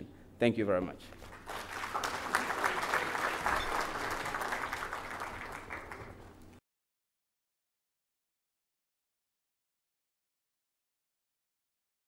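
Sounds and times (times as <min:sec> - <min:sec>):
audience applauding: 0:01.2 - 0:06.4.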